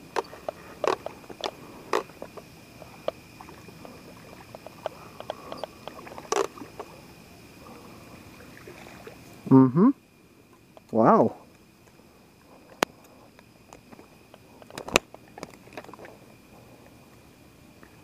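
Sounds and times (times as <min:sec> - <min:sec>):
faint high-pitched hum: 0:00.0 - 0:18.0
clicks and knocks handling fishing gear: 0:00.1 - 0:03.2, 0:04.2 - 0:06.9, 0:12.5 - 0:16.2.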